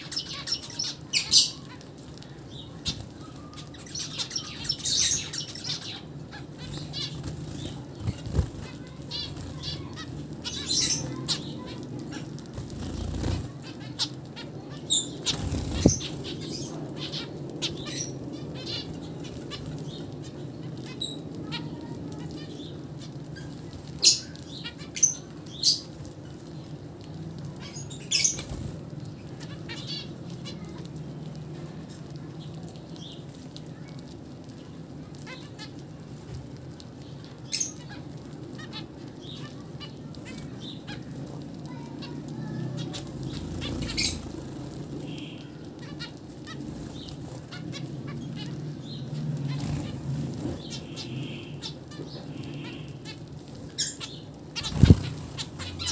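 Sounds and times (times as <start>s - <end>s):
wings fluttering: 0.0s - 20.1s, 28.0s - 30.0s, 39.4s - 55.9s
finches calling: 42.8s - 44.4s, 53.8s - 55.9s.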